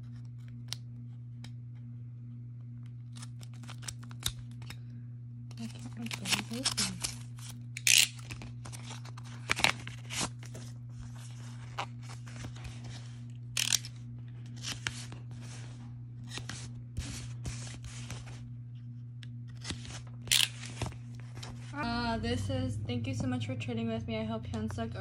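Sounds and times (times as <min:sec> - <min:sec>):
cardboard tearing: 0:05.7 - 0:10.6.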